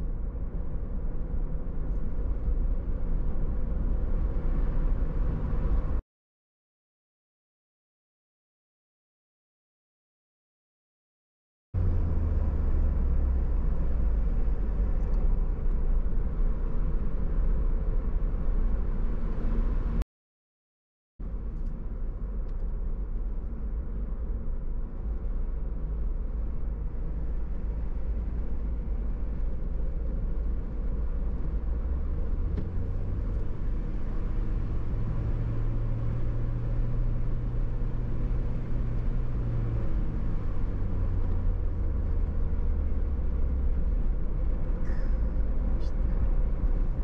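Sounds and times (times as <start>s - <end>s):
car driving on highway: 0.0s - 6.0s, 11.8s - 20.0s, 21.2s - 47.0s
low engine drone: 21.2s - 47.0s.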